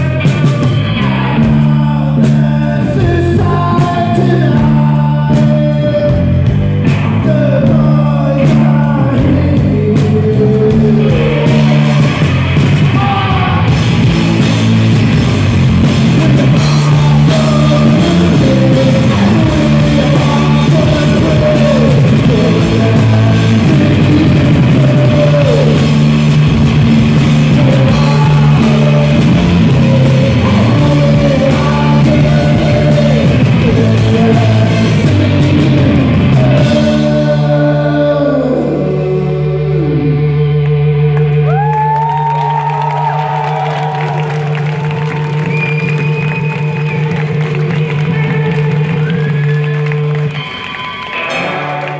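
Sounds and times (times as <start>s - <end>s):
man singing: 0.0s - 14.5s, 15.8s - 41.7s
rock band playing: 0.0s - 51.9s.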